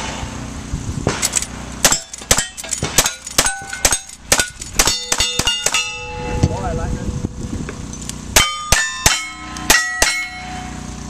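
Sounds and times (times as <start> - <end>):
rifle shots: 1.1 - 5.9
steel target ringing: 1.8 - 6.9, 8.3 - 11.0.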